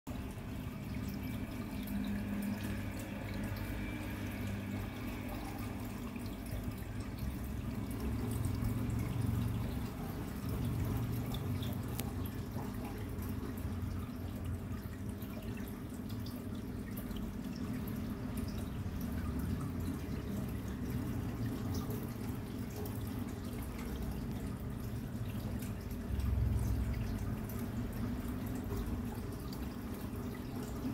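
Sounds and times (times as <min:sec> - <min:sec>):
aquarium filter hum: 0:00.1 - 0:30.9
water trickling and dripping: 0:00.1 - 0:30.9
faint small ticks: 0:11.6 - 0:12.4.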